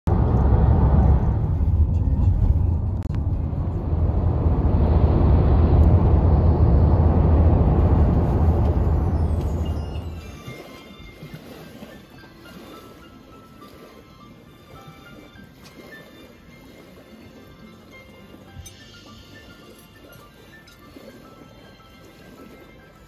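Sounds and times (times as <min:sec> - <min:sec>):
car road and wind noise: 0:00.0 - 0:10.6.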